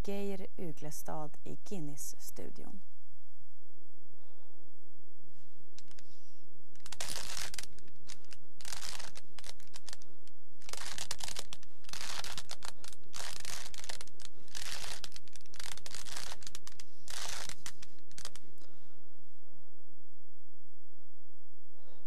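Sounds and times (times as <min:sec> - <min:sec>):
puzzle cube plastic clicks: 0:06.8 - 0:10.0, 0:10.6 - 0:18.4.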